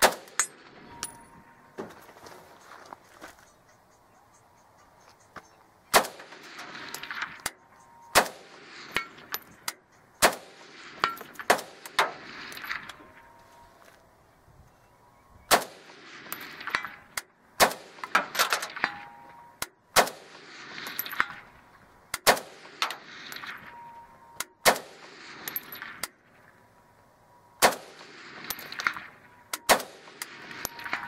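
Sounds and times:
rifle shots with echo: 0.0s - 1.3s, 5.9s - 13.3s, 15.5s - 23.9s, 24.6s - 26.2s, 27.6s - 31.0s.

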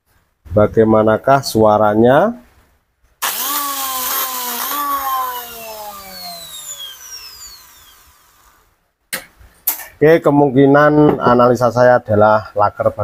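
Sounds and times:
angle grinder motor whine: 3.2s - 8.7s.

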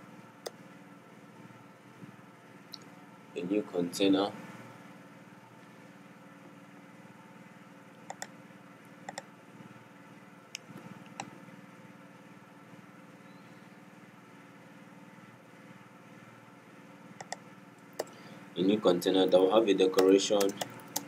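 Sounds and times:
faint low hum: 0.0s - 21.0s
computer clicks: 8.1s - 8.3s, 9.1s - 9.3s, 17.2s - 17.4s, 18.0s - 18.2s, 20.0s - 21.0s.

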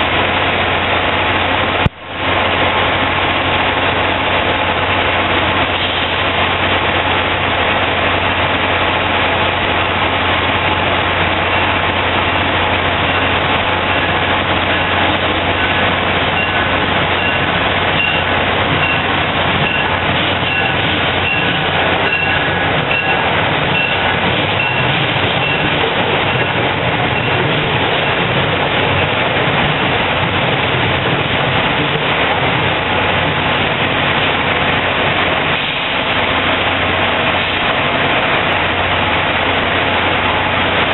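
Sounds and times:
diesel engine hum: 0.0s - 40.9s
train wheels clicking over rail joints: 9.4s - 39.3s
short high-pitched ring: 15.6s - 26.6s.

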